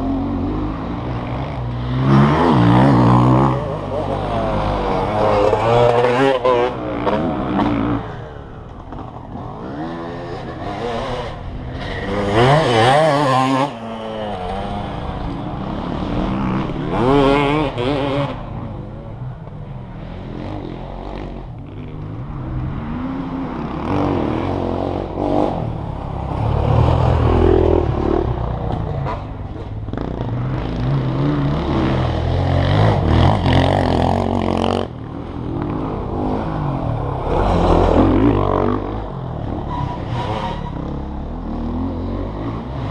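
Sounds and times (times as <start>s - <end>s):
off-road vehicle engines revving: 0.0s - 42.9s.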